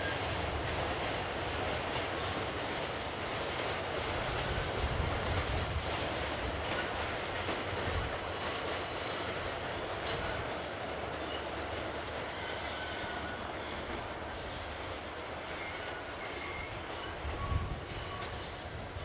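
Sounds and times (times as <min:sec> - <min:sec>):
train wagons rumbling on rails: 0:00.0 - 0:19.0
high wheel squeal: 0:08.2 - 0:10.5, 0:12.3 - 0:19.0.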